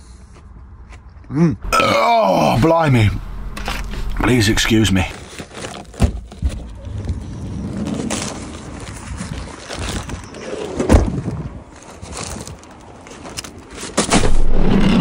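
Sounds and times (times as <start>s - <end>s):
paper bag rustling: 3.6s - 6.4s.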